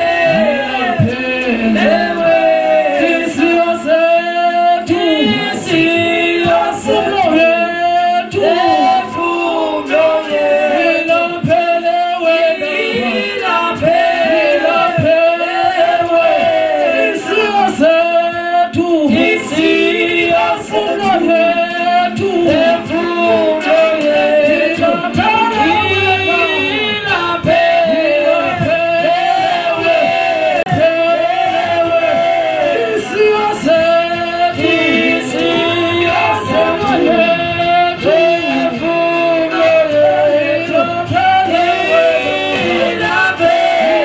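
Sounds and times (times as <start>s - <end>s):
man singing into a microphone: 0.0s - 44.0s.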